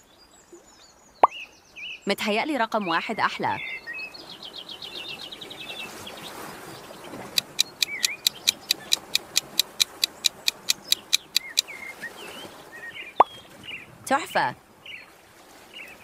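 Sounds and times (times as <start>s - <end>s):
timer ticking rapidly: 7.4s - 11.6s
bird chirps: 7.4s - 11.8s.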